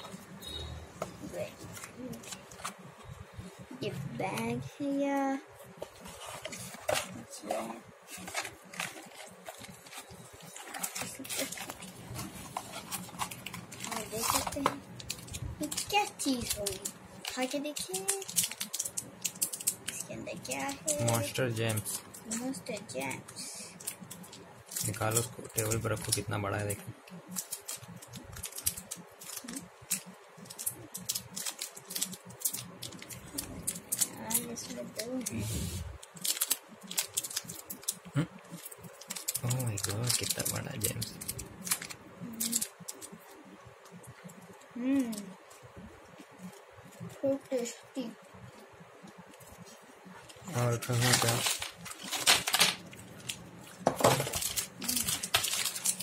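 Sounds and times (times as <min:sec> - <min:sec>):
plastic wrapper crackling: 0:05.7 - 0:47.7, 0:48.4 - 0:56.0
plastic packet crinkling: 0:05.9 - 0:35.4, 0:36.0 - 0:43.4, 0:50.3 - 0:56.0.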